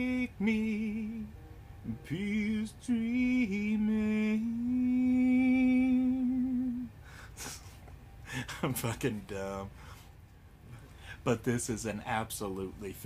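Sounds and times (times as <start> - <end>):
man singing slowly: 0.0 - 6.9.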